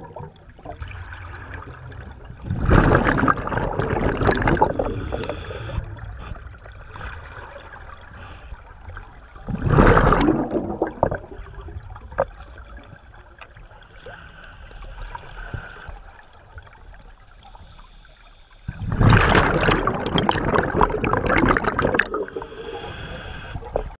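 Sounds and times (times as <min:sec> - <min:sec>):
underwater exhaled bubbles rushing: 0:00.0 - 0:13.8, 0:18.7 - 0:24.0
low underwater wash: 0:00.0 - 0:24.0.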